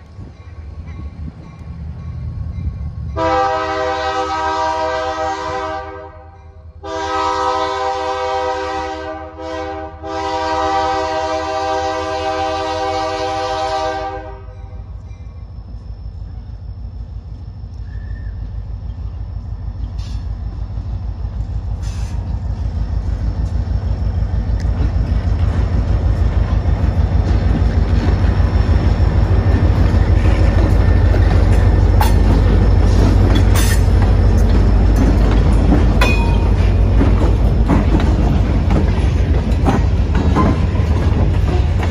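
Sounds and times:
locomotive engines rumbling: 0.0s - 41.9s
sharp knocks from train: 30.2s - 41.9s.

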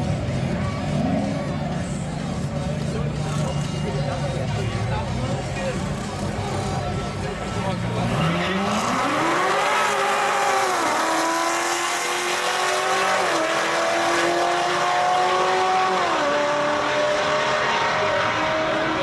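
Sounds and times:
car engines at full throttle: 0.0s - 19.0s.

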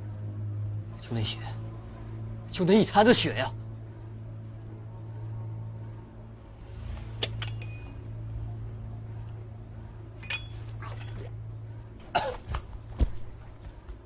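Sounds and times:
low steady hum: 0.0s - 14.0s
light clinks and knocks: 7.2s - 8.0s, 10.2s - 11.3s.

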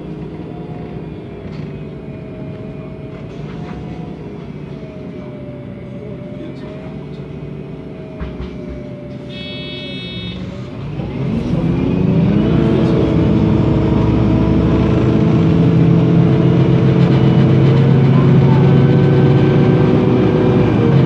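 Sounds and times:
bus engine revving: 0.0s - 21.0s
short electronic beep: 9.3s - 10.6s.

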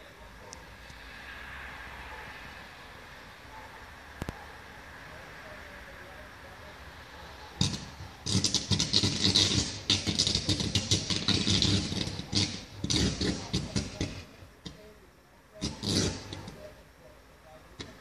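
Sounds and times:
electrical arcing crackling and buzzing: 7.6s - 14.8s, 15.6s - 16.8s.

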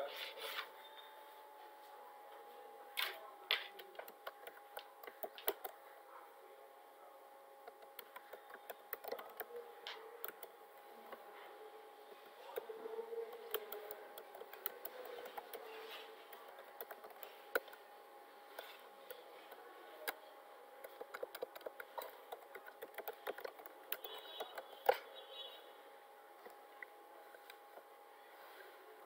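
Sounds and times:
faint steady hum: 0.0s - 29.0s
keyboard typing clicks: 3.0s - 5.8s, 7.6s - 11.2s, 12.2s - 17.8s, 18.5s - 20.2s, 20.8s - 25.1s.

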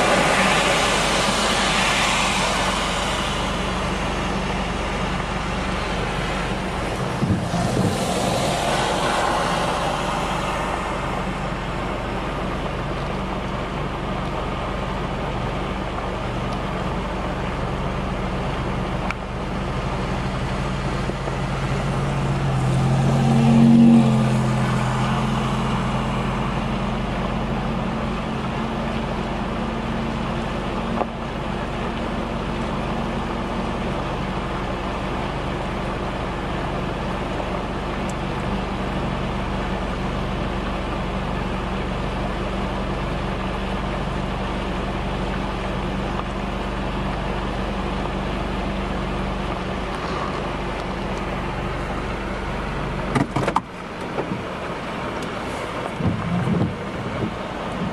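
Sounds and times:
car driving past: 0.0s - 12.6s, 20.8s - 27.4s
floodwater rushing: 0.0s - 53.1s
wind: 0.0s - 57.9s.

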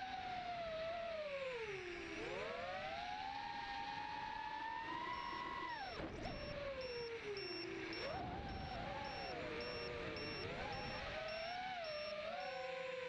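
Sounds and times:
drone motors whining: 0.6s - 13.0s
faint high beep: 5.1s - 12.8s.

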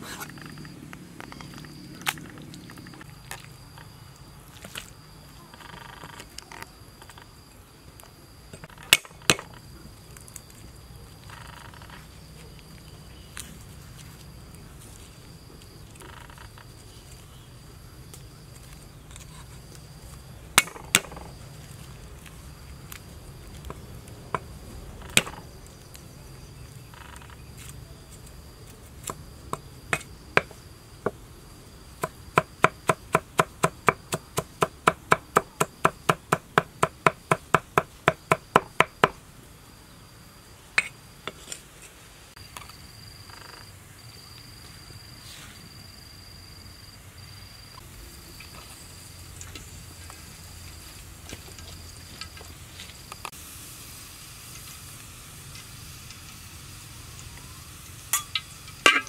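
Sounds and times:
insect chirping: 0.0s - 59.0s
cleaver chopping on wooden board: 32.0s - 39.2s.

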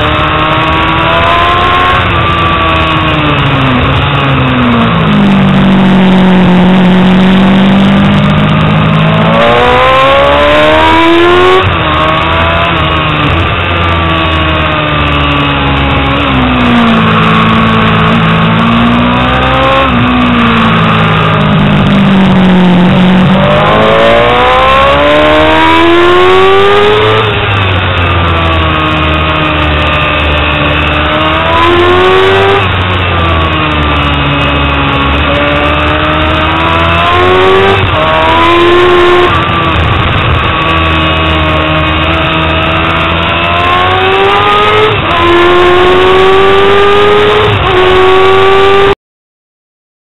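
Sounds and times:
motorcycle engine revving: 0.0s - 49.0s.

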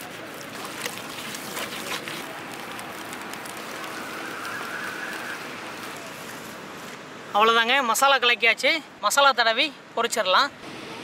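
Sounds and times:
hand squelching wet paste: 0.0s - 5.4s.

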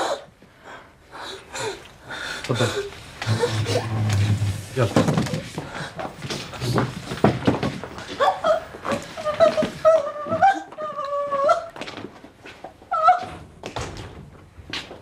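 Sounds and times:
footsteps and shuffling: 2.4s - 15.0s
woman wailing and crying: 8.2s - 11.8s.

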